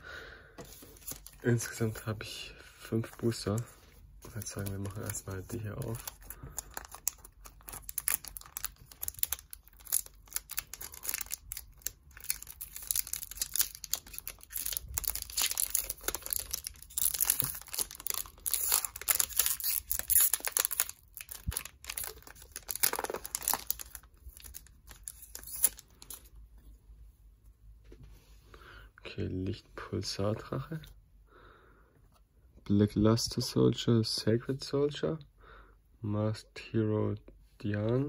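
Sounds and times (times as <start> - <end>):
foil wrapper crinkling and tearing: 4.3 - 26.3.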